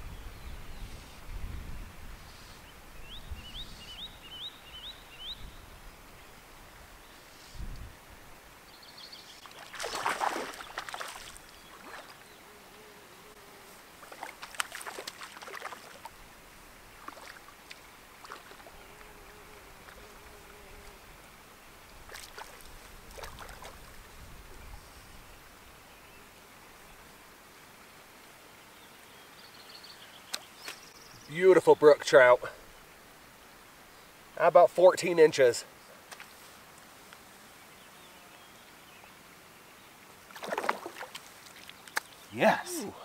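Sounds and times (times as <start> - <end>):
low outdoor hiss: 0.0 - 43.0
fish splashing in water: 9.5 - 12.2, 14.0 - 16.2, 17.0 - 18.7, 22.1 - 24.0, 40.3 - 42.0.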